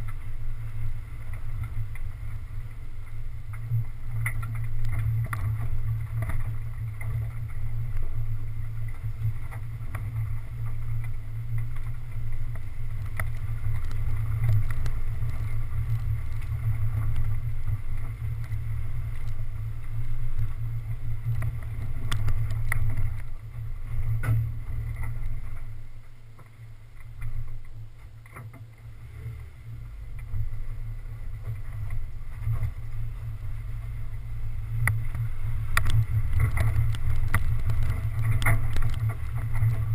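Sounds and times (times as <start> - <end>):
off-road vehicle engine rumble: 0.0 - 39.9.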